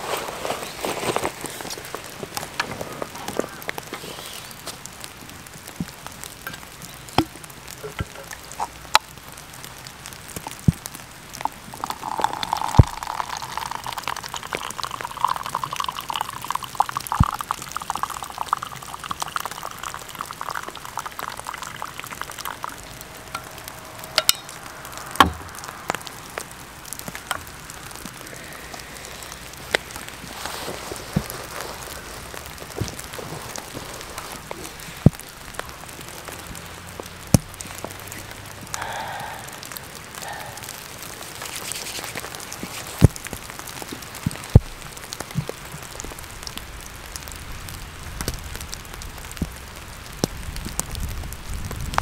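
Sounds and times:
tea pouring into paper cup: 0:11.4 - 0:23.6, 0:27.0 - 0:35.2, 0:41.2 - 0:43.2.

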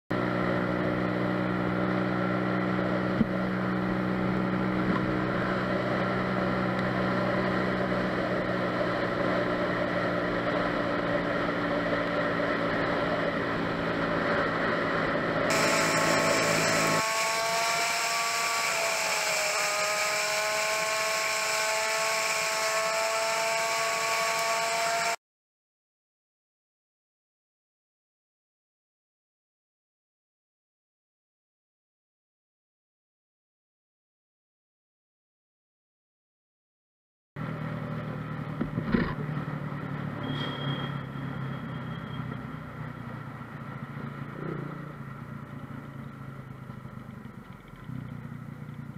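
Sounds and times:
vehicle engine drone: 0:00.1 - 0:25.2, 0:37.4 - 0:48.9.

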